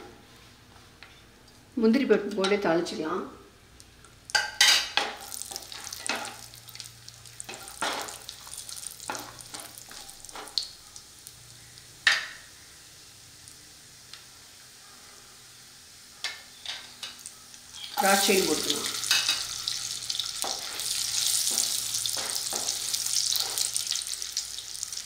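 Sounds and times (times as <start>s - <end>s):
nuts sizzling in hot oil: 4.3s - 25.0s
spatula stirring in a pan: 18.9s - 24.9s.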